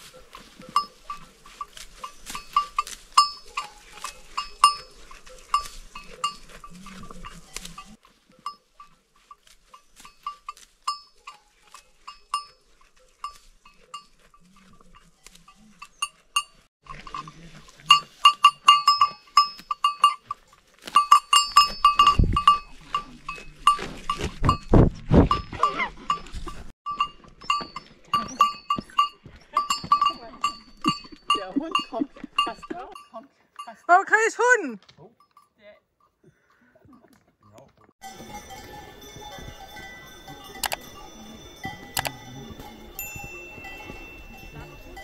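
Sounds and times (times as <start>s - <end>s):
grass rustling: 0.0s - 33.1s, 38.0s - 45.0s
small bell tinkling: 25.3s - 33.9s, 35.2s - 36.2s, 38.0s - 45.0s.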